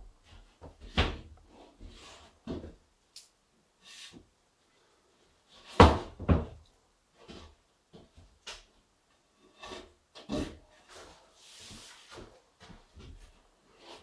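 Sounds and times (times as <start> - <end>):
drywall knocking on wood framing: 5.8 - 6.6.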